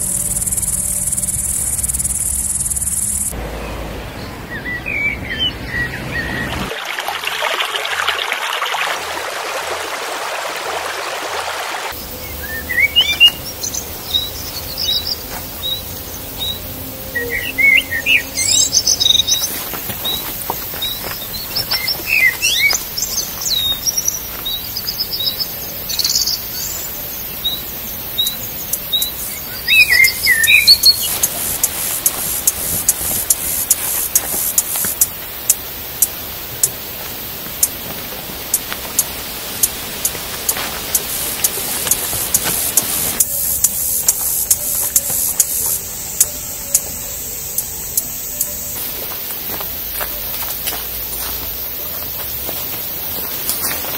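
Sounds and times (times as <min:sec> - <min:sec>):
songbirds chirping and trilling: 0:00.0 - 0:06.7, 0:11.9 - 0:53.9
steady hiss: 0:12.0 - 0:53.9.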